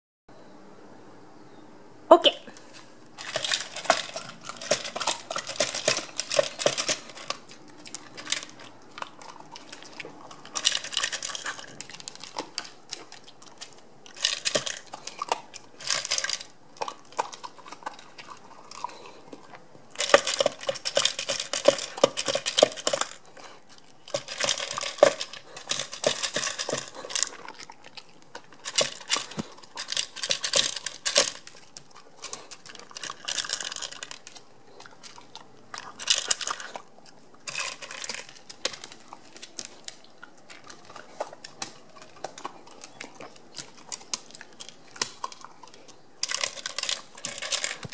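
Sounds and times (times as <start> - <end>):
kibble clattering in plastic bowl: 3.2 - 17.8, 20.0 - 23.2, 24.0 - 27.7, 28.5 - 34.4, 46.2 - 47.9.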